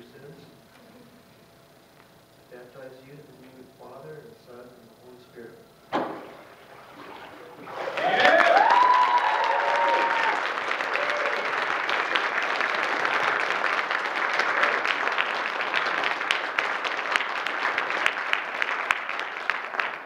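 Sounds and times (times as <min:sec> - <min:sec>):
crowd applauding: 0:07.6 - 0:20.0.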